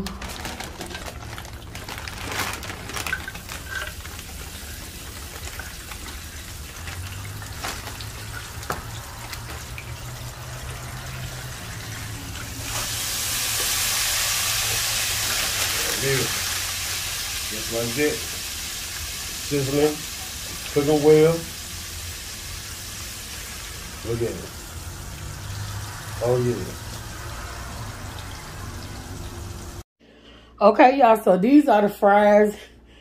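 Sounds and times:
basket rattling: 0.0 - 4.5
fries poured into metal basket: 0.0 - 9.7, 10.4 - 21.8
plastic bag crinkling: 0.0 - 9.8, 14.4 - 18.2
oil sizzling in deep fryer: 3.1 - 29.8.

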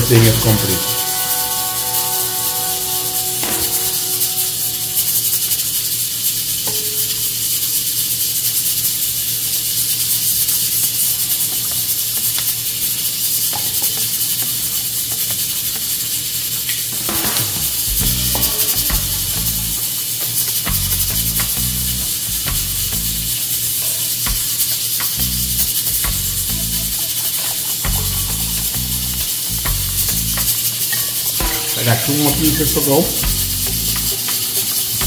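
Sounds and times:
metal bowl ringing: 0.0 - 7.2, 17.1 - 23.4, 24.1 - 35.0.

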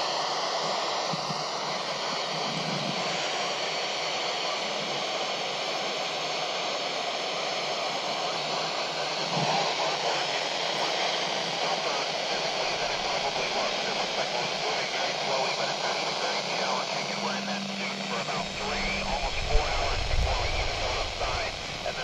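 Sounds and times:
radio receiver hiss: 7.8 - 22.0.

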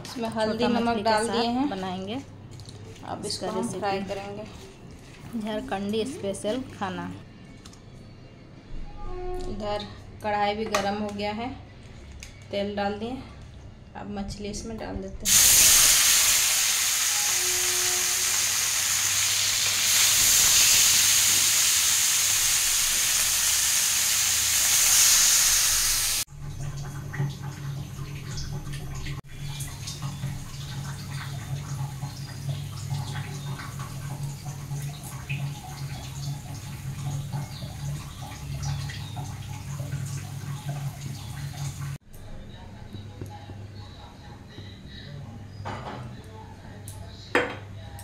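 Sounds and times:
fish sizzling in hot oil: 15.3 - 26.3.

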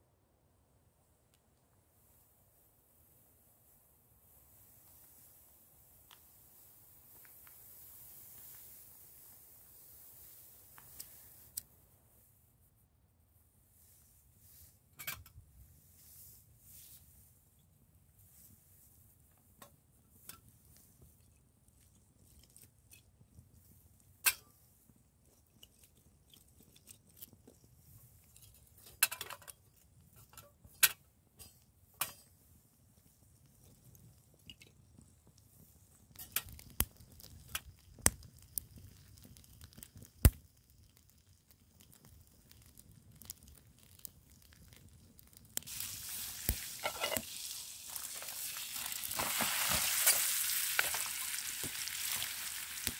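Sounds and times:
food sizzling in a pan: 45.6 - 52.9.

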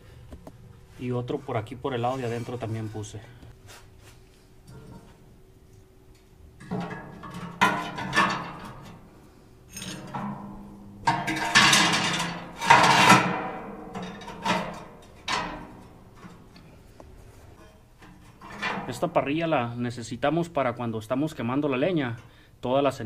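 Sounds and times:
metal grill grate clanking: 6.6 - 9.0, 9.7 - 16.5.

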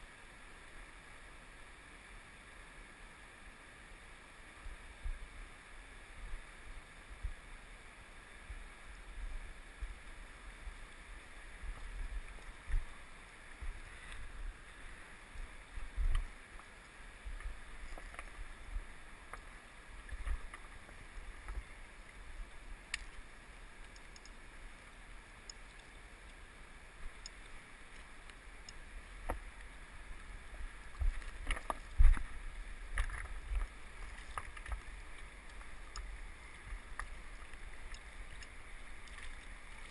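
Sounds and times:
river flowing: 0.0 - 39.9
wind rumble on microphone: 15.3 - 16.4, 30.4 - 33.8.

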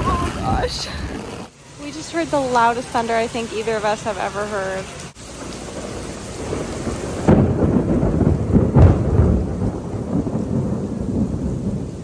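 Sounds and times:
heavy rain on pavement: 0.0 - 12.0
thunder rumbling: 0.0 - 12.0.

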